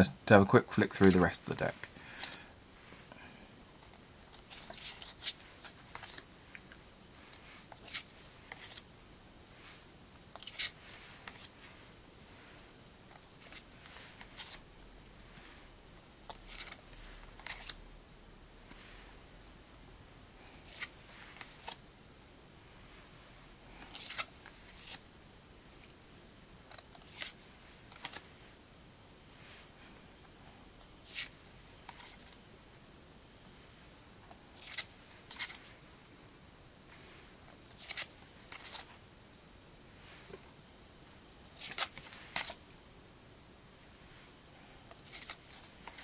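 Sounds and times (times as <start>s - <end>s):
cards sliding and tapping: 3.8s - 8.8s, 10.2s - 11.6s, 13.1s - 14.6s, 16.3s - 17.8s, 20.5s - 21.8s, 23.8s - 25.0s, 26.7s - 28.3s, 34.2s - 35.6s, 37.5s - 38.9s, 41.5s - 42.6s, 44.9s - 46.0s.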